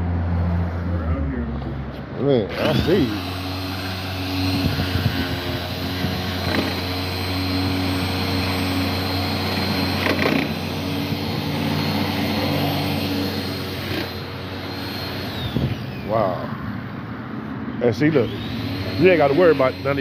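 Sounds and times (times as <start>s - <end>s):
electric polisher motor hum: 2.5s - 16.6s, 18.1s - 20.0s.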